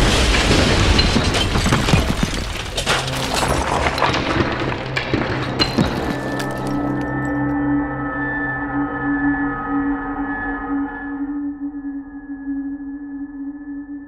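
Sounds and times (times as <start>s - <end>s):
wood splintering and debris falling: 0.0s - 7.4s
low sustained music tones: 6.3s - 14.0s.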